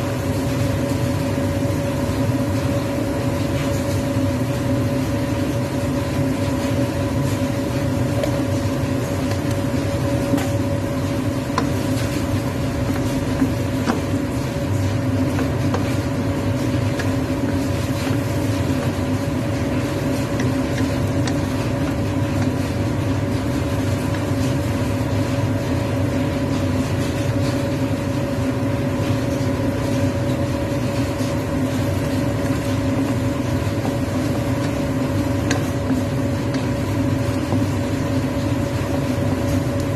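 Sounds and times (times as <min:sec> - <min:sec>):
machine hum with whine: 0:00.0 - 0:39.9
wooden spatula scraping a wok: 0:30.9 - 0:39.9.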